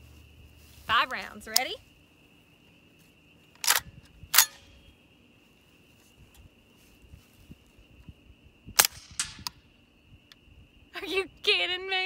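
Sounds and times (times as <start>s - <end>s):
suppressed rifle shot: 8.8s - 9.6s.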